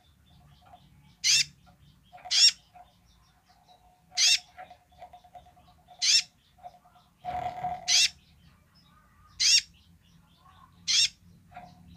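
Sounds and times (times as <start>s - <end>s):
bird giving sharp high calls: 10.9s - 11.2s.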